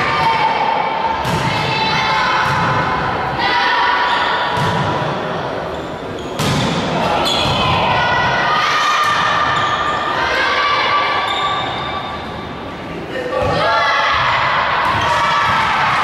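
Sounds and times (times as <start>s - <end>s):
players' voices: 0.0s - 16.0s
shoes squeaking on floor: 5.7s - 6.4s, 11.2s - 12.2s.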